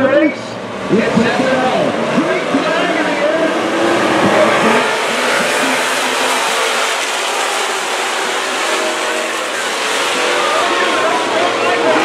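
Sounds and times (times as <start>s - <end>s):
race car engines roaring: 0.0s - 12.0s.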